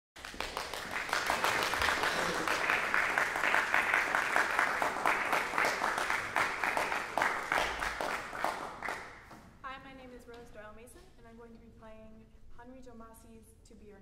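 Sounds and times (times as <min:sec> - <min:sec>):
audience applauding: 0:00.2 - 0:09.3.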